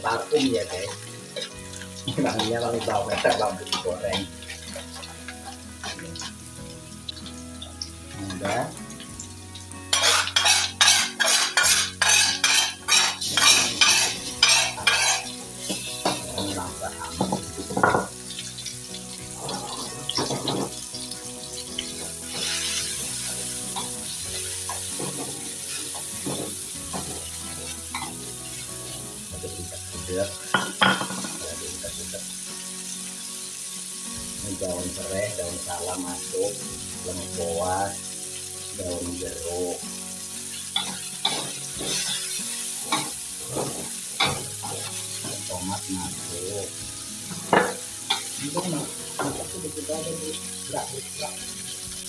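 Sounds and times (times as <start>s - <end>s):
paste sizzling in oil: 0.0s - 52.0s
spatula scraping a bowl: 10.0s - 16.0s.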